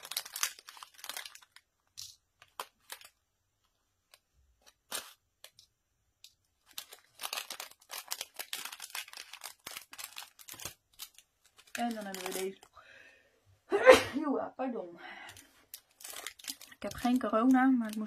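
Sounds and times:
plastic bag crinkling: 0.0 - 12.9, 15.2 - 18.0.

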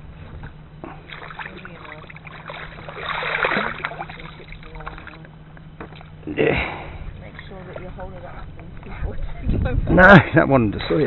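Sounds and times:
water splashing and dripping: 1.0 - 5.3.

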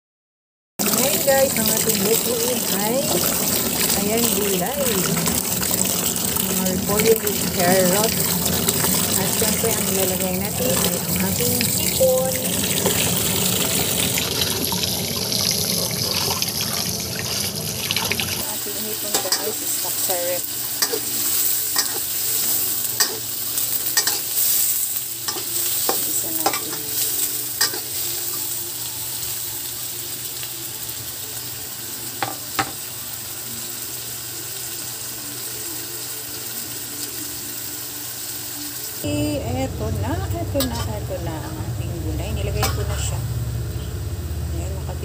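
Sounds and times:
water running over vegetables: 0.8 - 32.2
shrimp sizzling in oil: 0.8 - 39.2, 40.3 - 44.3
utensil scraping in pan: 12.6 - 28.2.

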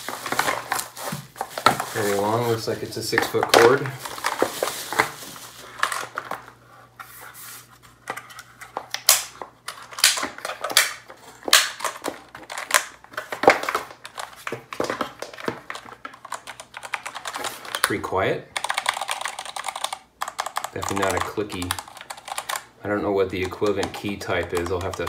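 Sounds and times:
bubble wrap crinkling: 0.0 - 6.6
plastic keyboard knocks: 23.5 - 25.0.

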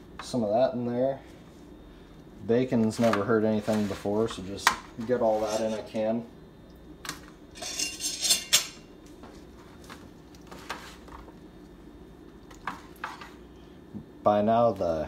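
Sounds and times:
low steady hum: 0.0 - 15.0
metal baking pans clinking: 7.6 - 8.8.

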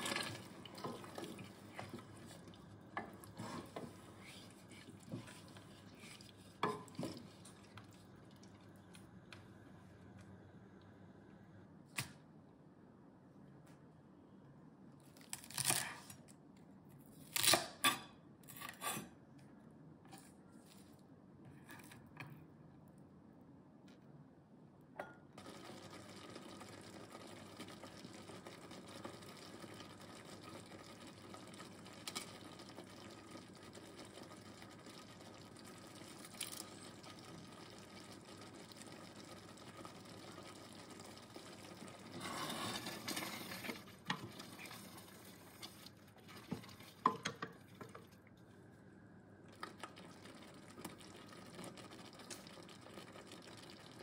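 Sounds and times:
sizzling: 0.0 - 9.2, 25.4 - 48.2, 49.5 - 54.0
sauce simmering: 0.0 - 10.4, 25.4 - 54.0.

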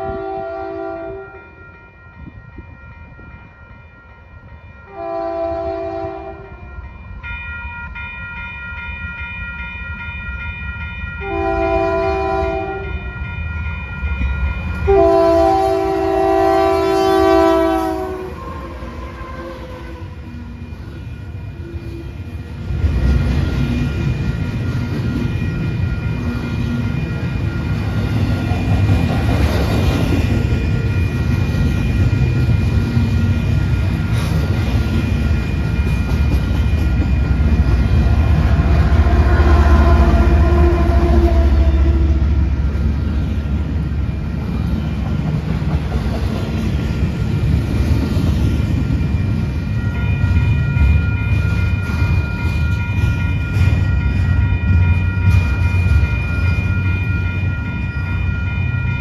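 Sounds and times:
diesel locomotive engine: 0.0 - 59.0
high ringing tones: 1.1 - 45.5, 46.6 - 59.0
train wheels rumbling on rail: 7.8 - 59.0.

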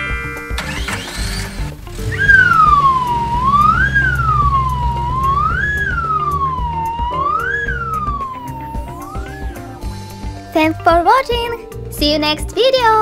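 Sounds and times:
background music: 0.0 - 13.0
police siren wailing: 2.0 - 10.0.

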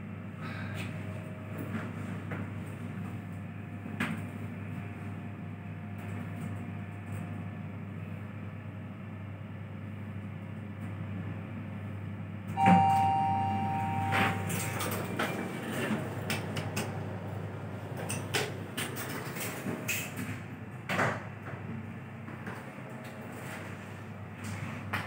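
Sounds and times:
elevator car hum: 0.0 - 25.0
two-tone arrival chime: 12.6 - 14.9
elevator clunk: 12.6 - 17.0
elevator doors sliding: 12.6 - 20.5.

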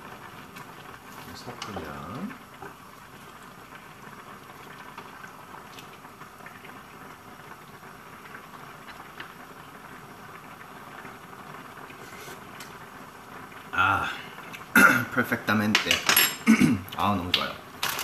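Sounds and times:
stew bubbling in a pot: 0.0 - 18.0
faint stirring clicks: 0.5 - 2.8, 8.2 - 9.6.

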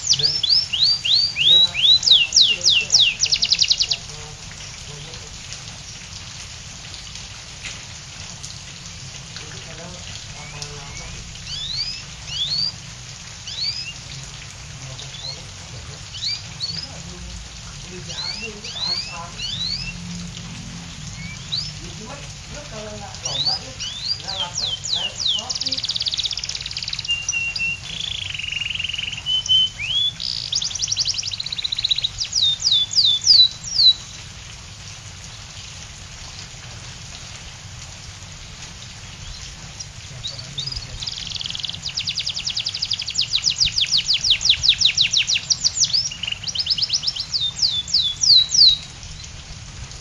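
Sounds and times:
canary singing: 0.0 - 5.1, 9.7 - 14.2, 14.8 - 17.1, 17.8 - 34.2, 39.2 - 48.9.

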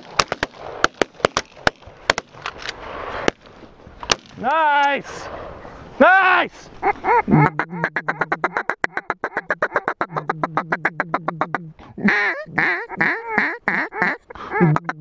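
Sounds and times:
duck call quacking: 6.8 - 15.0.

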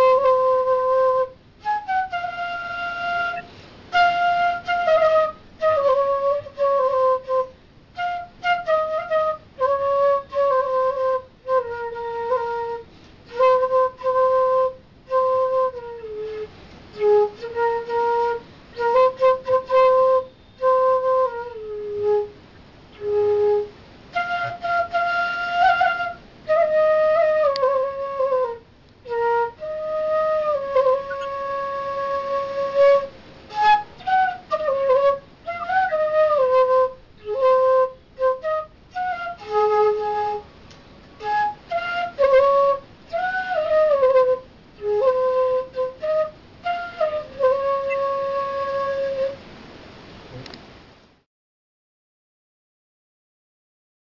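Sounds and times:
bamboo flute melody: 0.0 - 49.5.

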